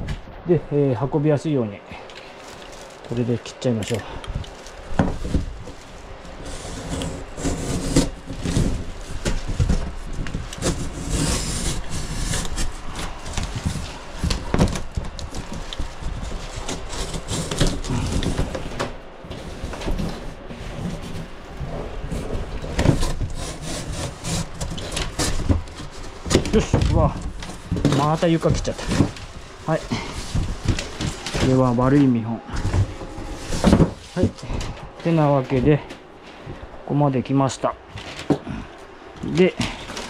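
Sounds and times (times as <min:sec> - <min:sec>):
cardboard scraping: 0:04.3 - 0:36.5, 0:39.2 - 0:40.0
knife slicing cardboard: 0:10.6 - 0:13.6.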